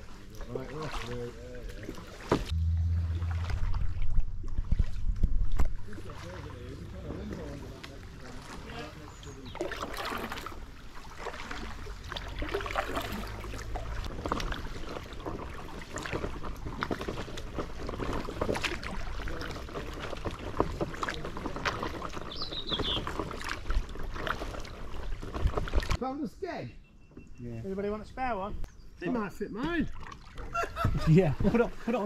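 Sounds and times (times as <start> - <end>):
branches scraping kayak hull: 0.0 - 26.1.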